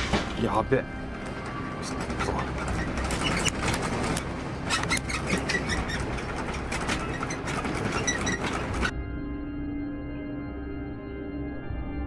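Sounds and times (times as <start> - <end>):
sharp clicks and rattles: 1.2 - 8.9.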